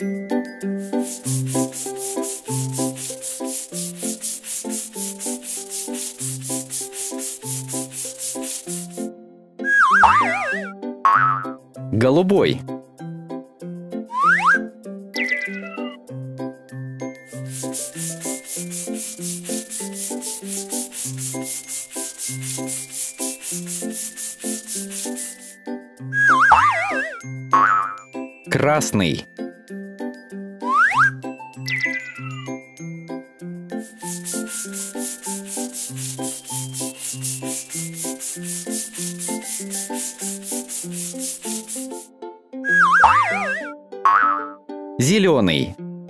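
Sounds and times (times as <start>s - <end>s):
brush strokes scrubbing: 0.7s - 9.1s, 17.2s - 25.6s, 26.2s - 27.2s, 33.8s - 42.1s, 42.7s - 43.7s
paintbrush swishes: 0.7s - 9.1s, 9.7s - 10.7s, 17.2s - 25.6s, 26.2s - 27.2s, 33.8s - 42.1s, 42.7s - 43.7s
children's music track: 9.6s - 45.7s
simple children's tune: 14.1s - 16.0s, 30.1s - 45.7s.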